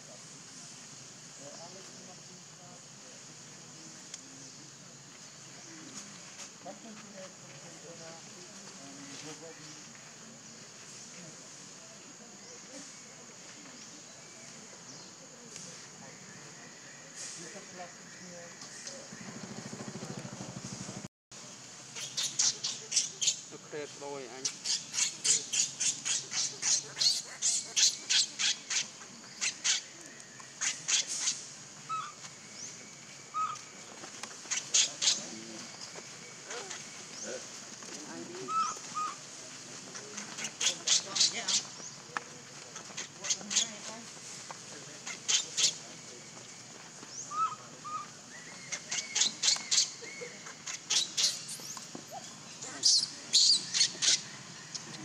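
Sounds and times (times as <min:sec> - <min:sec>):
baby monkey screaming: 0:38.5 - 0:39.2, 0:47.3 - 0:48.1
baby monkey squeaking cries: 0:38.5 - 0:39.2.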